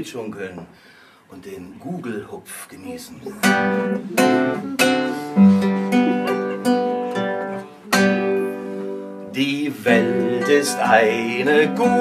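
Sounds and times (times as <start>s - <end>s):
classical guitar strumming chords: 3.2s - 12.0s.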